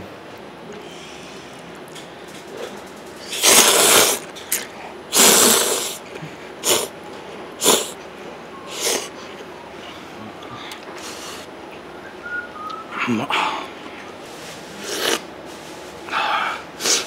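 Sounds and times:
person slurping noodles: 3.3 - 6.0, 6.6 - 6.9, 7.6 - 8.0, 14.7 - 15.3, 16.8 - 17.0.

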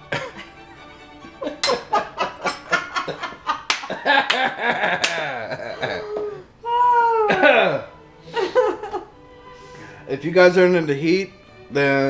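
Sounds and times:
people coughing: 0.0 - 0.6, 7.3 - 8.9
people laughing: 0.0 - 6.5, 7.1 - 9.2.

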